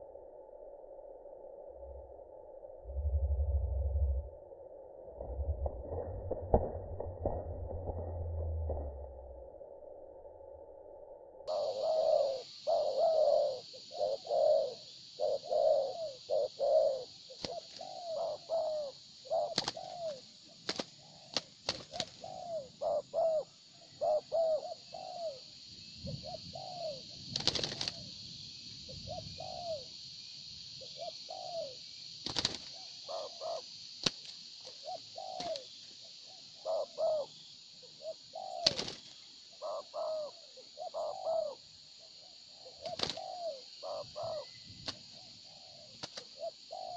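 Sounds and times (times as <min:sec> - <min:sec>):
doves cooing: 0:05.1 - 0:09.4, 0:11.5 - 0:28.2, 0:28.9 - 0:30.0, 0:30.8 - 0:46.9
steady high hiss: 0:11.5 - 0:24.0, 0:24.9 - 0:46.9.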